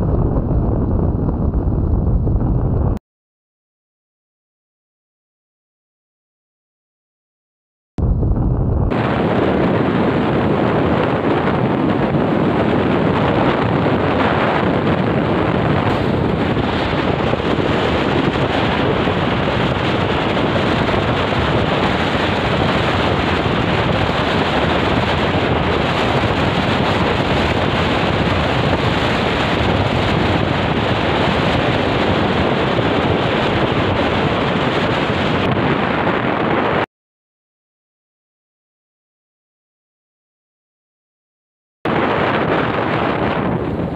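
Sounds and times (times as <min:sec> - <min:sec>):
wind rushing over microphone: 0:00.0 - 0:03.0, 0:08.0 - 0:36.9, 0:41.9 - 0:43.9
motorcycle road noise: 0:08.9 - 0:36.8.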